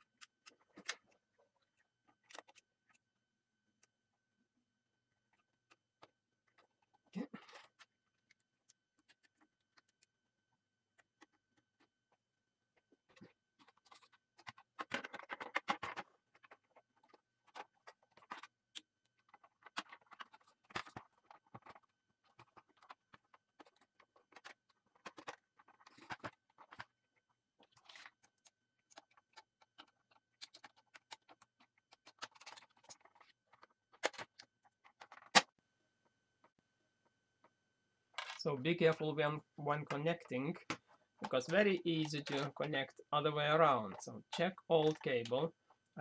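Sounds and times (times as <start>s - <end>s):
plastic parts clicking and rattling: 0.0s - 4.2s, 5.0s - 35.6s, 38.1s - 46.0s.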